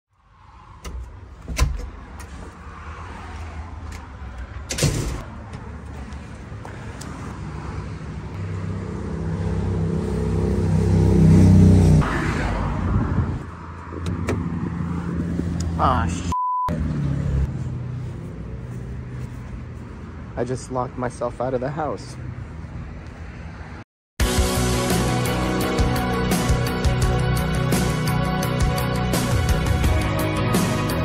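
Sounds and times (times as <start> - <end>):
door clicks: 0.8 - 2.4.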